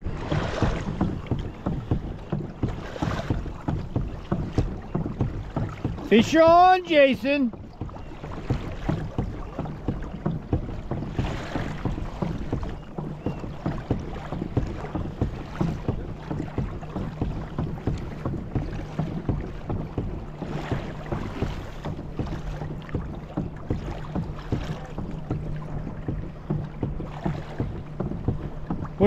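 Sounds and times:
water lapping against kayak hull: 0.0s - 29.0s.

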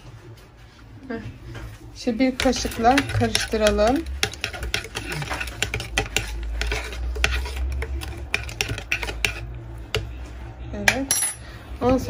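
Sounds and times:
teaspoon clinking while stirring: 2.4s - 10.1s.

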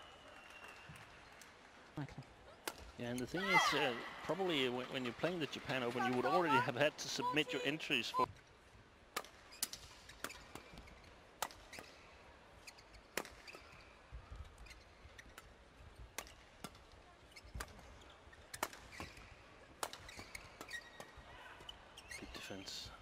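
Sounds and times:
rackets hitting shuttlecock: 2.6s - 3.8s, 13.1s - 13.8s, 18.5s - 21.2s.

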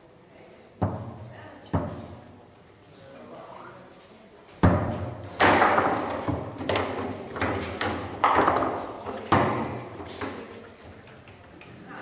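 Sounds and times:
foosball ball knocks: 4.6s - 10.4s.

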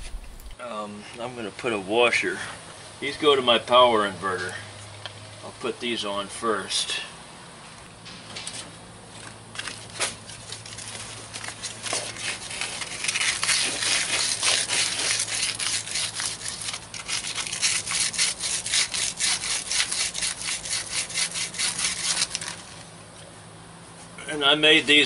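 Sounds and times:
sandpaper rubbing on metal: 0.0s - 0.6s, 11.6s - 22.7s.

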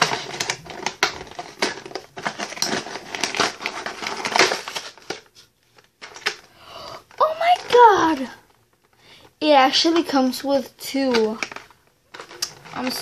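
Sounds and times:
plastic packaging crinkling: 0.0s - 10.3s, 10.9s - 13.0s.

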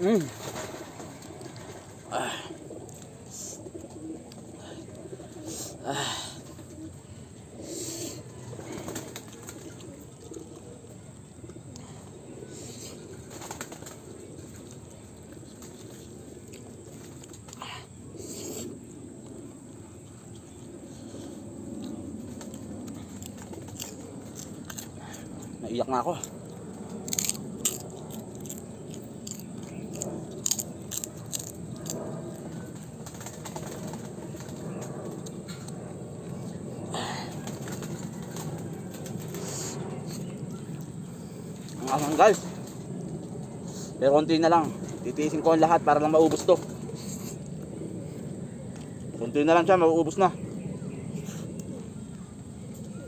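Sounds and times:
chewing and crunching pork rind: 16.4s - 17.6s, 21.7s - 33.0s.

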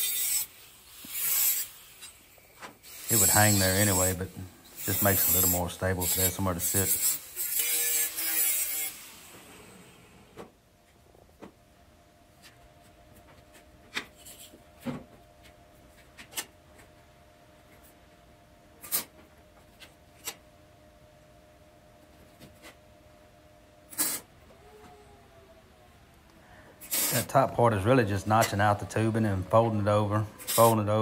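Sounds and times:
faint hum of shop equipment: 0.0s - 31.0s.

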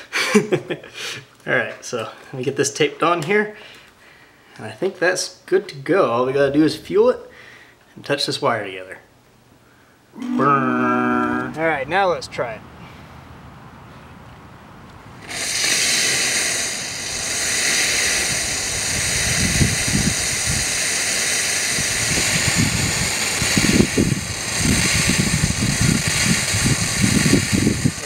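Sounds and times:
foam hissing from nozzle: 15.2s - 28.0s
jet sputtering with low gurgles: 15.2s - 28.0s
pumps switching on: 15.2s - 28.0s.

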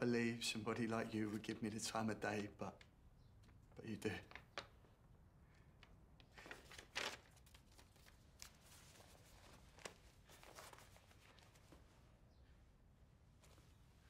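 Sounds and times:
faint rustles: 6.3s - 14.0s.

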